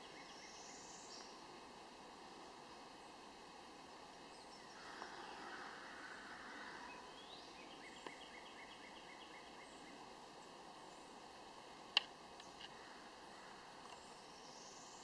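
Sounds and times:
distant bird calling: 0:04.3 - 0:11.2, 0:12.4 - 0:15.0.

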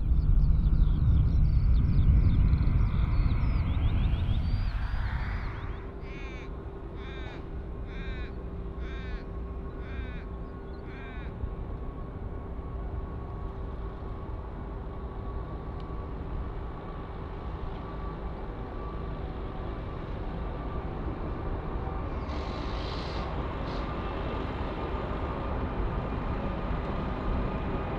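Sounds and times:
faint steady hum: 0:00.0 - 0:27.9
low steady rumble: 0:00.0 - 0:27.9
crow cawing: 0:06.0 - 0:11.4.

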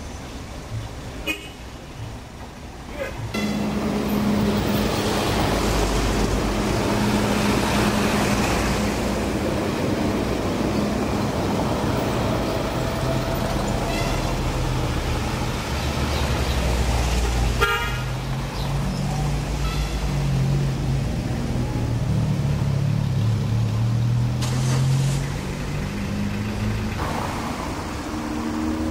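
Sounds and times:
tram passing: 0:01.9 - 0:28.9
tram horn tooting: 0:03.2 - 0:05.2, 0:13.7 - 0:14.9, 0:17.6 - 0:18.2, 0:19.6 - 0:20.2.

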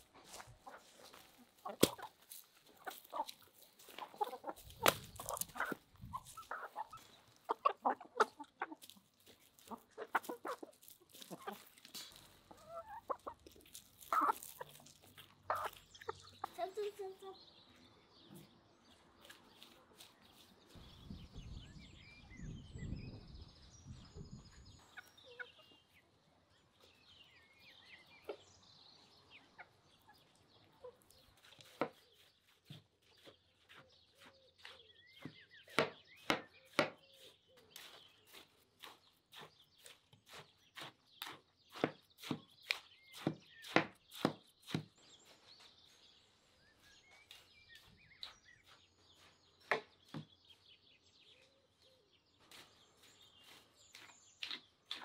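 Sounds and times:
chickens clucking: 0:00.0 - 0:17.4, 0:24.4 - 0:28.5, 0:29.2 - 0:40.9
small birds chirping: 0:00.0 - 0:55.0.

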